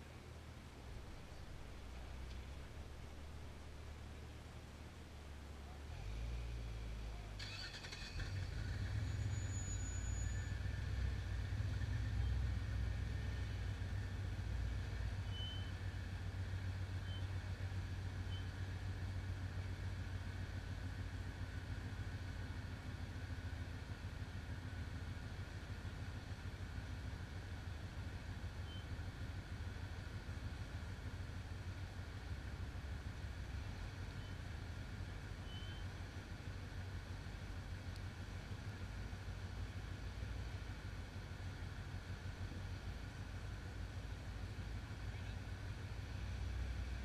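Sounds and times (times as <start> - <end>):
faint high whine: 0.0 - 20.2, 35.4 - 36.1
buggy engine running: 0.0 - 47.0.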